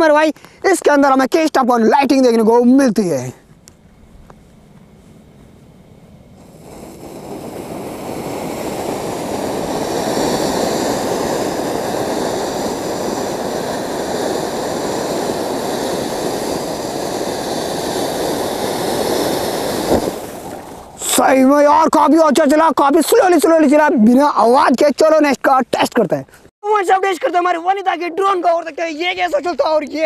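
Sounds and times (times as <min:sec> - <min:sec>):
firework fountain hissing: 0:06.4 - 0:21.2.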